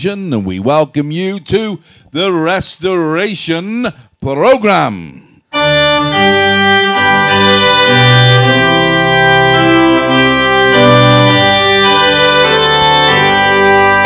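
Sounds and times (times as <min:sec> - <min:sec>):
organ music: 0:05.5 - 0:14.0.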